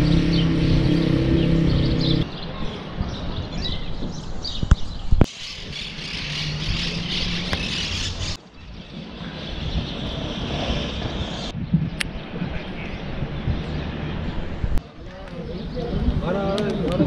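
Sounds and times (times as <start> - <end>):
steady engine hum: 0.0 - 2.3
small birds chirping: 0.0 - 14.5
traffic noise: 0.0 - 17.0.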